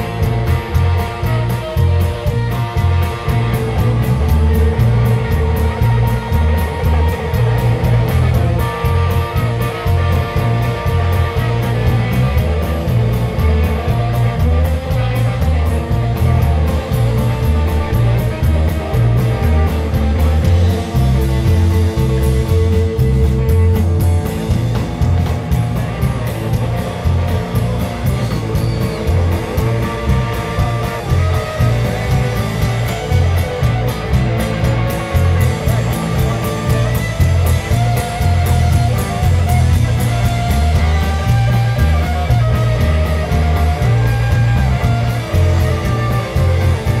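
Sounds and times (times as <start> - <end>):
bass guitar: 0.0 - 47.0
drum kit beat: 0.0 - 47.0
electric guitar: 0.0 - 47.0.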